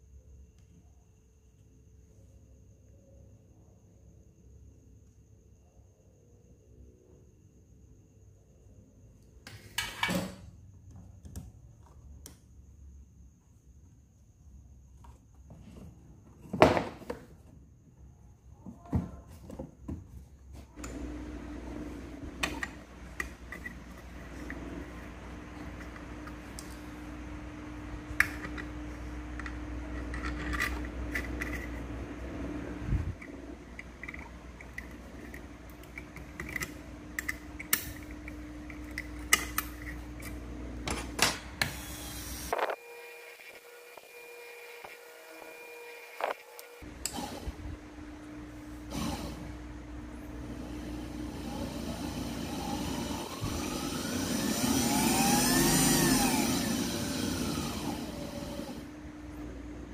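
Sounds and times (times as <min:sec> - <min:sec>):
steady hum: 0:20.6 - 0:59.9.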